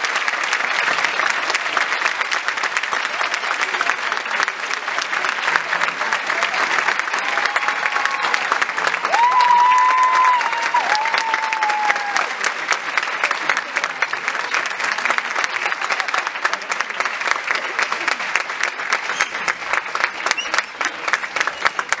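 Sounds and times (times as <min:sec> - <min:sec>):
audience applauding: 0:00.0 - 0:22.0.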